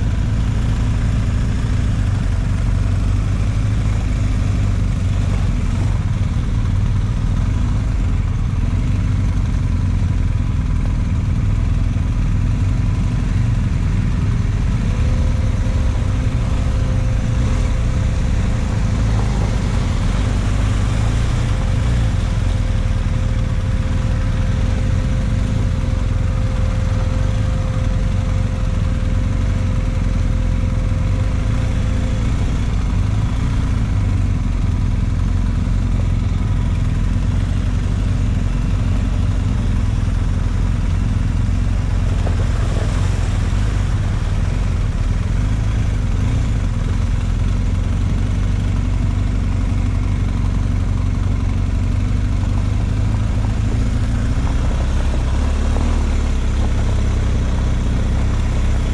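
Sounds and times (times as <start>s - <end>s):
vehicle engine rumbling: 0.0s - 58.9s.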